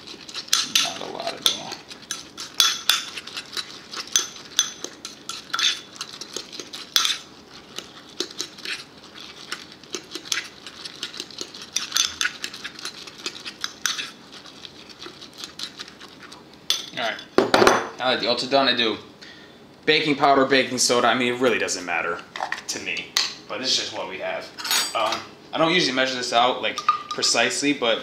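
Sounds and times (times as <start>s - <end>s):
metal spoon scraping ceramic bowl: 0.5s - 6.0s, 6.8s - 7.2s.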